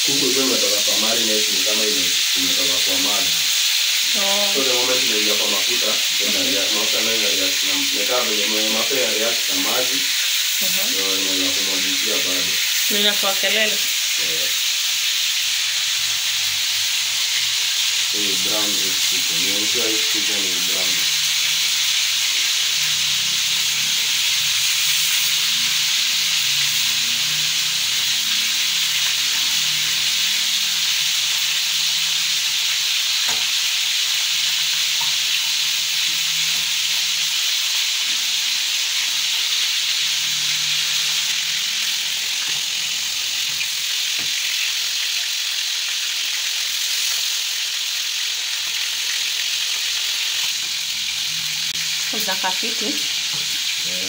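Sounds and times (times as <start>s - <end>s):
chicken sizzling in hot oil: 0.0s - 54.0s.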